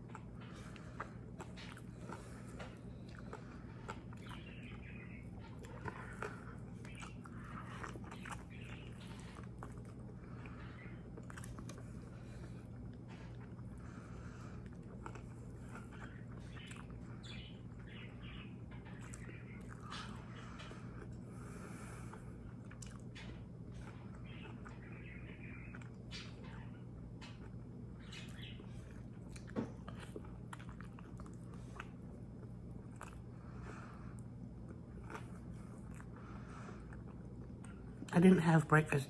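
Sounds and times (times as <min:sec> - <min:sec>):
person chewing: 0:00.0 - 0:17.9, 0:19.0 - 0:24.8, 0:25.7 - 0:27.8, 0:28.6 - 0:38.1
low hum: 0:00.0 - 0:39.0.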